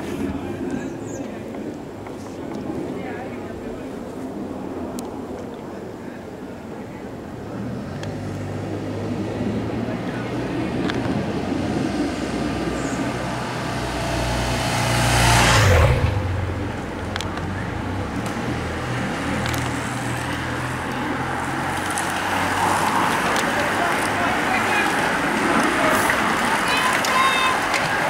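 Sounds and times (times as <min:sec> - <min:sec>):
motorcycle passing by: 0:07.6 - 0:16.9.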